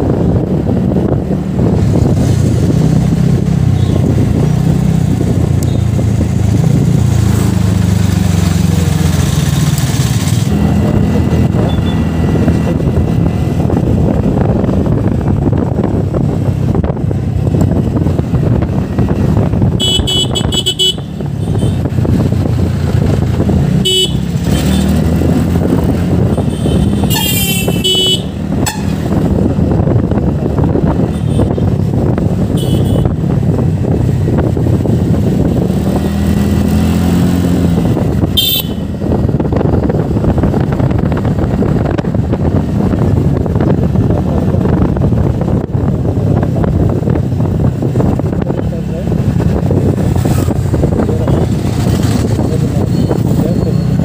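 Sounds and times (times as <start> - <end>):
scooter road rumble and wind: 0.0 - 54.0
vehicle horns beeping: 11.6 - 12.0, 19.8 - 21.9, 23.8 - 25.0, 26.3 - 29.0, 32.5 - 33.2, 38.4 - 38.9.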